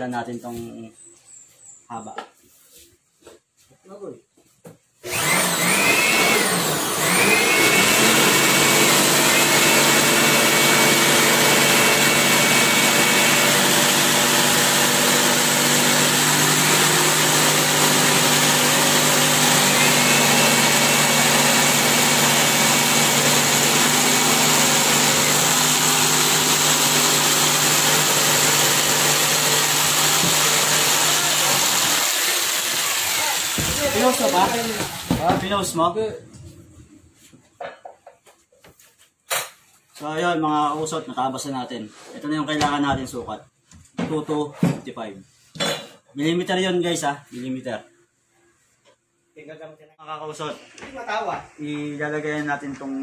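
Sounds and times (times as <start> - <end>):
electric jigsaw cutting wood: 5.0 - 35.4.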